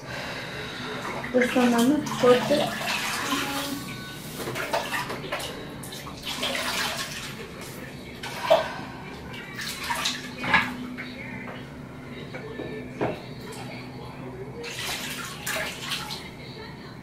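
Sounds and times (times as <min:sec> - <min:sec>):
bath water splashing and trickling: 0:01.0 - 0:10.7, 0:14.6 - 0:16.4.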